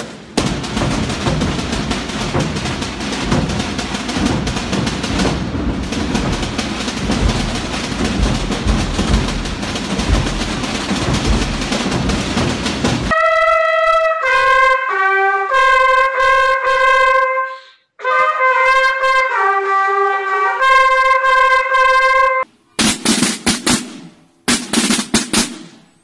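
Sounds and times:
drums beating: 0.0s - 13.2s, 22.8s - 26.0s
trumpet fanfare: 13.1s - 22.5s.

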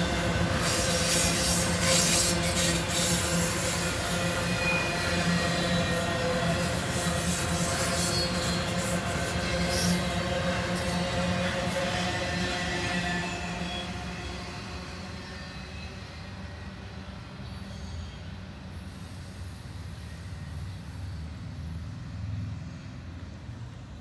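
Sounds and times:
faint wheel squeal: 0.0s - 16.7s, 17.4s - 24.0s
freight train rolling on rails: 0.0s - 24.0s.

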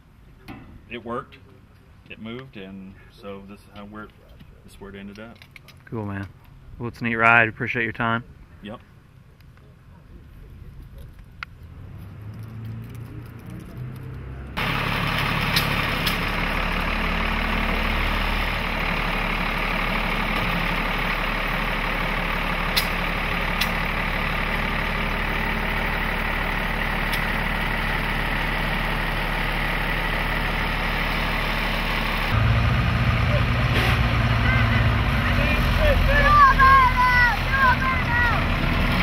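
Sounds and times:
diesel engine idling: 14.5s - 39.0s.

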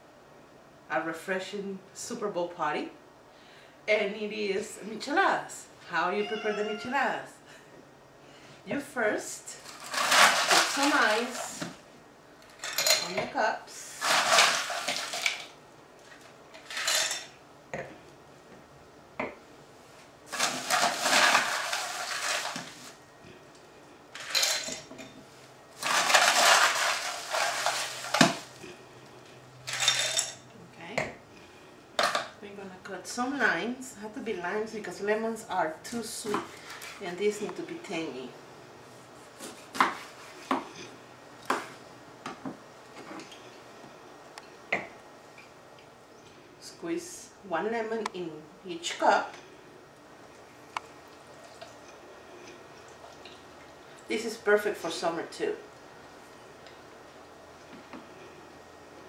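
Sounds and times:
plastic bag rustling: 9.6s - 11.6s, 13.9s - 17.0s, 20.3s - 23.0s, 25.7s - 28.6s
ice clattering against glass: 14.0s - 15.5s, 20.3s - 22.8s, 25.8s - 28.4s.

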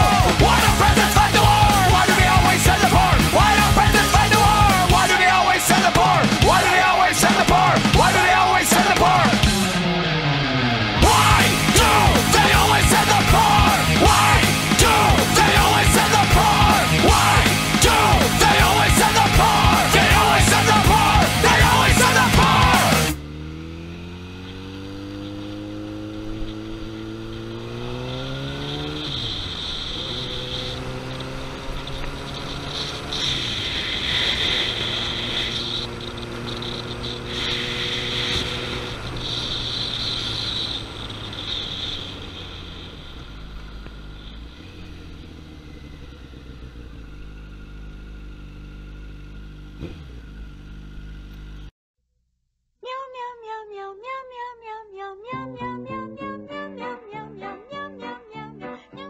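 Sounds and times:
motorcycle engine accelerating: 0.0s - 51.7s
cat meowing: 52.8s - 58.5s.

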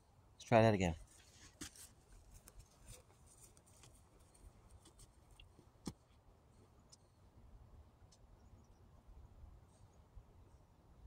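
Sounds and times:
footsteps on dry grass and sand: 1.0s - 6.1s.

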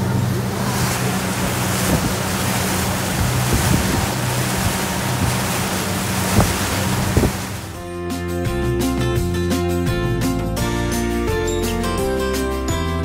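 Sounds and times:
water churning in wake: 0.0s - 8.0s
boat engine humming: 0.0s - 11.7s
wind buffeting microphone: 0.2s - 7.8s.

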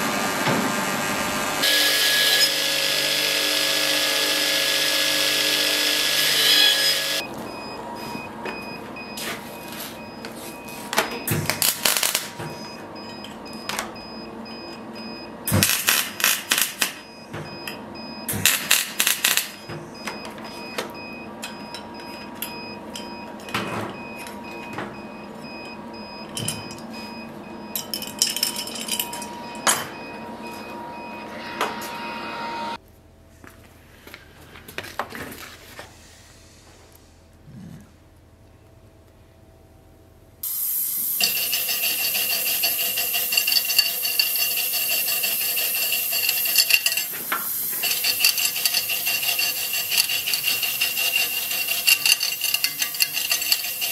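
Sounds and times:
electric arc welding crackling: 11.6s - 12.3s, 15.6s - 17.0s, 40.5s - 53.9s.

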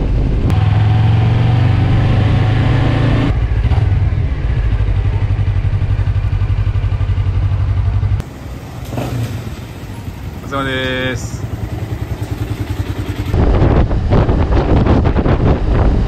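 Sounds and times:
motorcycle engine running: 3.2s - 16.0s.

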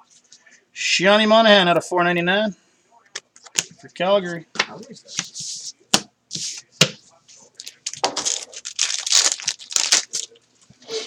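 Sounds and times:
foil wrapper tearing and crinkling: 7.6s - 10.4s.

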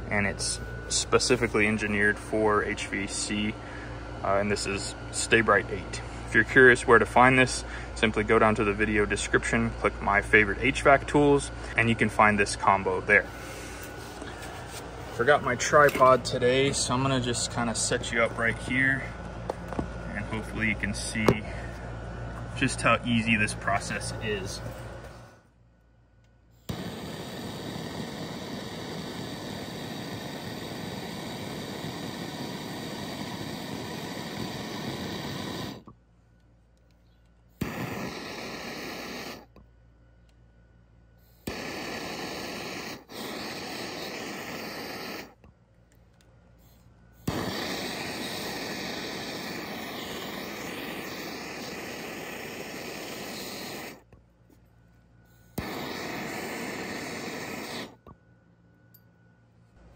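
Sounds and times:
gas torch hissing roar: 0.0s - 21.8s, 22.6s - 25.4s, 26.6s - 35.9s, 37.6s - 39.6s, 41.2s - 45.4s, 47.2s - 54.1s, 55.3s - 58.1s
torch sharp click: 15.8s - 16.2s, 26.6s - 35.9s, 37.6s - 39.6s, 41.4s - 45.5s, 47.2s - 54.0s, 55.5s - 58.0s.

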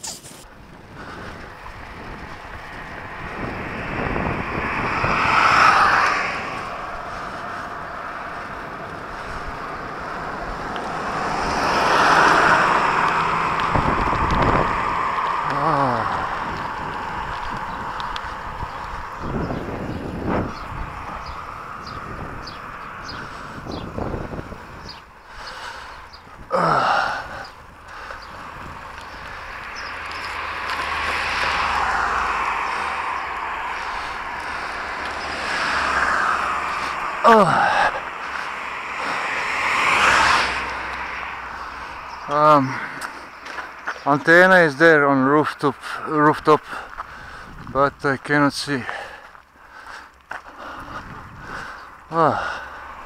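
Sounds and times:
wind rushing over microphone: 0.0s - 49.2s, 49.8s - 53.0s
traffic noise: 0.0s - 53.0s
car passing: 0.4s - 53.0s.

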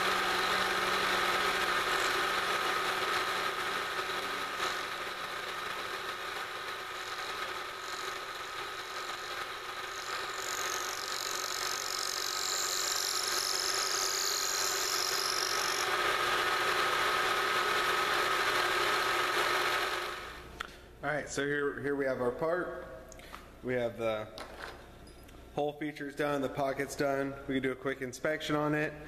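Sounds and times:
milling machine whine: 0.0s - 20.4s.

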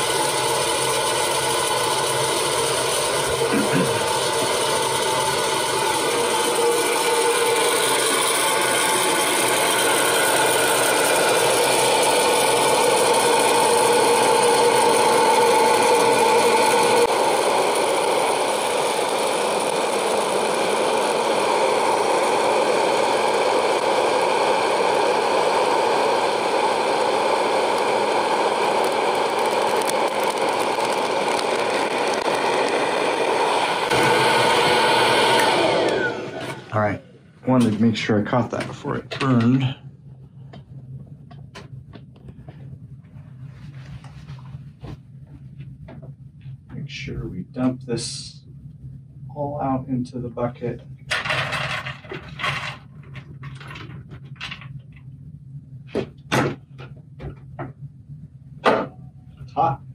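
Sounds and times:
popcorn popper fan drone: 0.0s - 59.9s
kernels rattling and popping: 27.6s - 34.1s, 51.1s - 55.1s.

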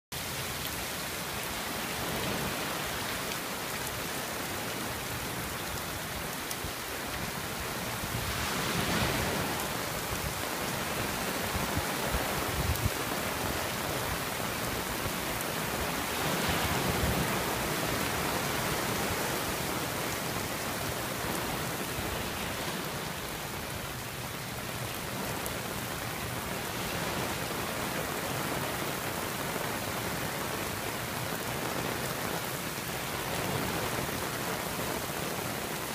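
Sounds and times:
rain on fabric umbrella: 0.1s - 35.9s.

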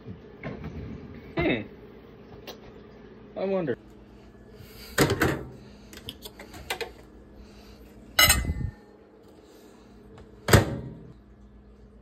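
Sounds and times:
metal and dishware clinks: 8.2s - 8.8s.

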